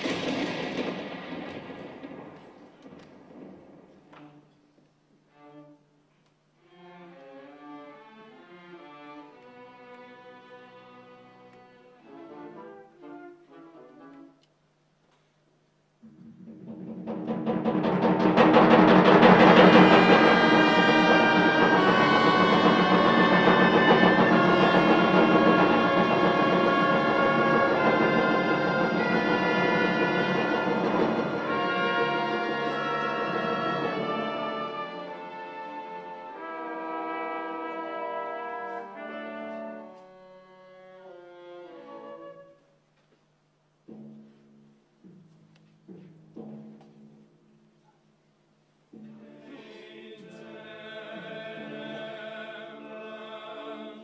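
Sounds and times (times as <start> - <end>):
drum roll: 0.0 - 4.5, 15.8 - 36.2, 43.7 - 47.7
orchestra sustained chords: 19.0 - 41.2.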